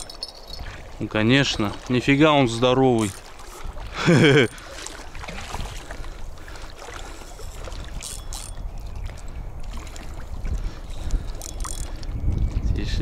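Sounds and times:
wind rumble on microphone: 5.1s - 13.0s.

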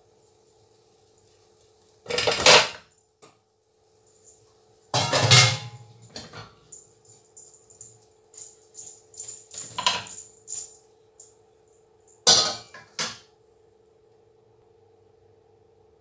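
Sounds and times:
faint steady hum: 0.0s - 16.0s
loud metal clanks: 5.0s - 5.9s
metal steamer clinking: 5.0s - 6.5s.

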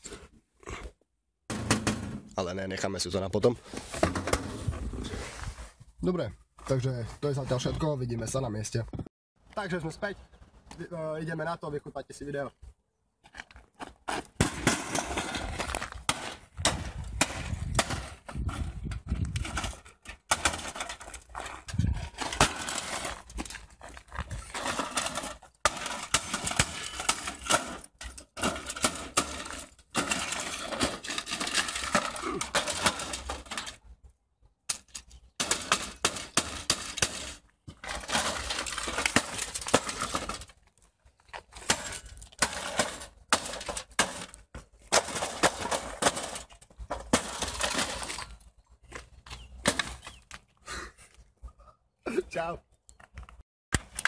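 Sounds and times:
parts breaking: 14.1s - 33.9s, 34.7s - 50.4s.

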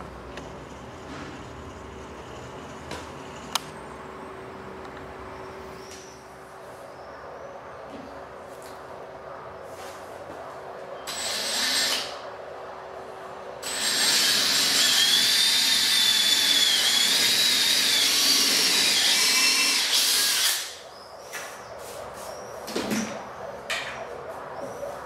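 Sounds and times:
electric drill boring into wood: 13.6s - 20.8s.

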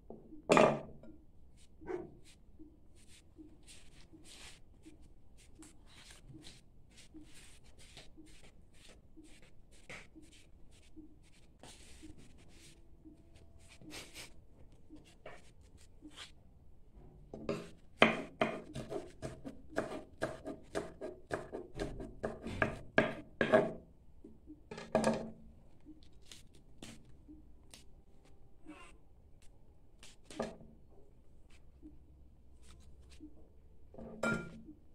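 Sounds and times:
knife chopping on wooden board: 17.4s - 23.7s.

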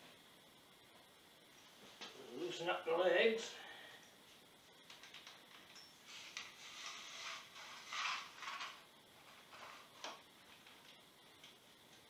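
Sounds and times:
repair stand legs sliding: 6.0s - 10.2s.

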